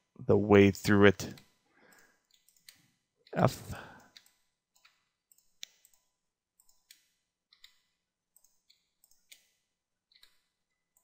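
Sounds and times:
mouse and keyboard clicks: 0:06.6 - 0:11.0.

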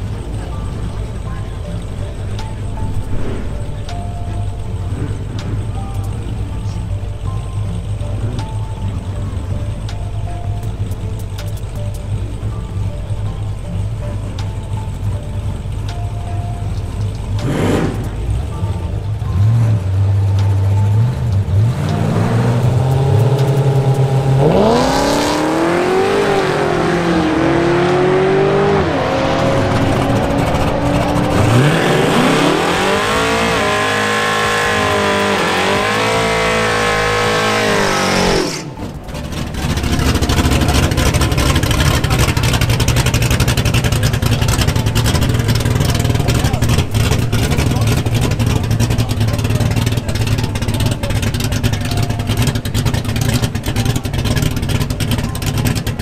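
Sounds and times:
car accelerating at full throttle: 0:00.0 - 0:56.0
car engines idling and blipping: 0:00.0 - 0:56.0
steady engine rumble: 0:00.0 - 0:56.0.

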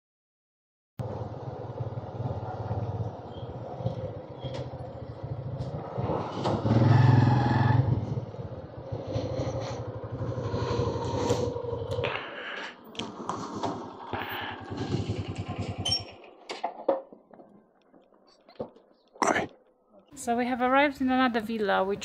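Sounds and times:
motorcycle engine running: 0:01.0 - 0:12.2, 0:13.0 - 0:17.1.

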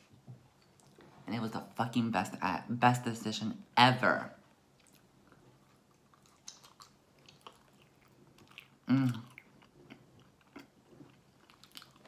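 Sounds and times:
person chewing fries: 0:04.6 - 0:12.0
wet mouth clicks: 0:06.4 - 0:07.6
person humming: 0:08.9 - 0:09.2.

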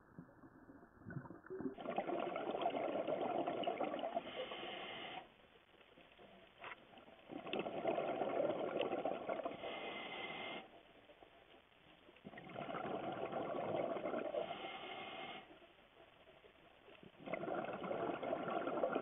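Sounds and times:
exhaled bubbles rushing: 0:00.0 - 0:04.3, 0:07.3 - 0:09.6, 0:12.3 - 0:14.5, 0:17.2 - 0:19.0.

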